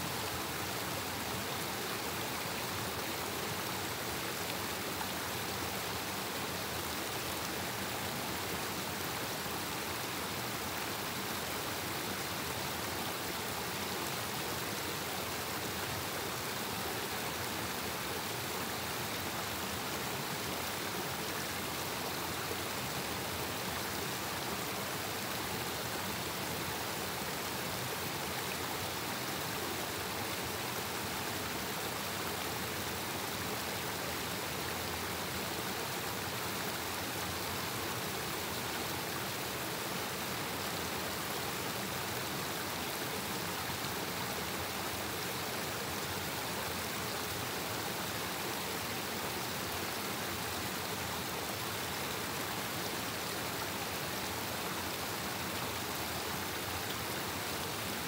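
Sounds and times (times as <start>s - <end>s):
stream rushing over cascades: 0.0s - 58.0s.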